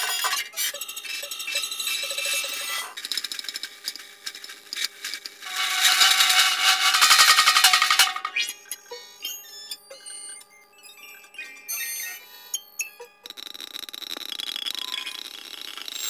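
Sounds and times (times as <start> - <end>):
clinking and rattling textures: 5.4 - 8.5.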